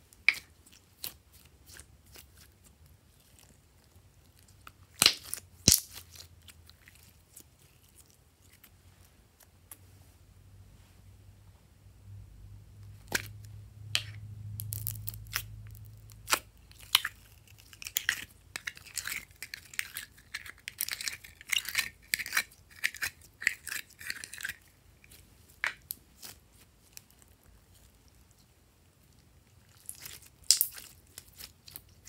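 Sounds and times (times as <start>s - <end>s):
slime squishing and popping: 4.6s - 7.4s, 14.0s - 20.0s, 29.7s - 32.0s.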